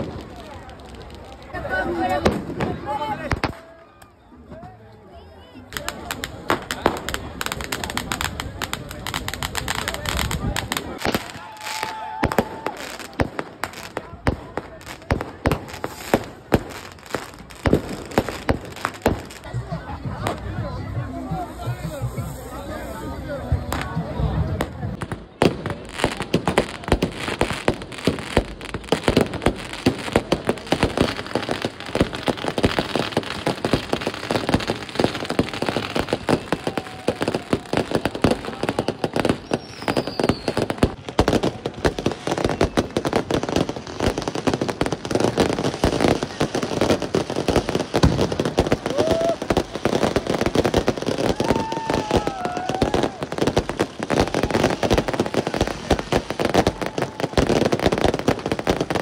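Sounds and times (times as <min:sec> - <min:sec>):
fireworks bangs and crackles: 0:00.0 - 0:04.8, 0:05.6 - 0:59.0.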